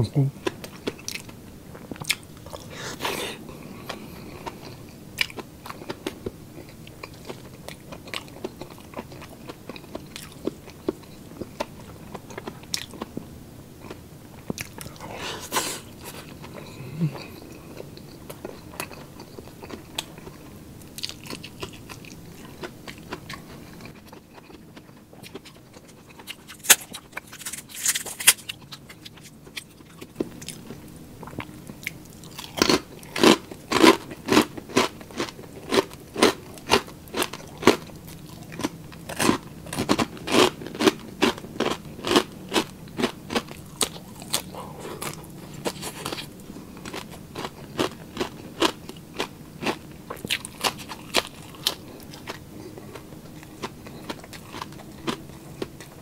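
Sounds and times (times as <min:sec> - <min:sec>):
crunchy food chewing: 0:00.4 - 0:56.0.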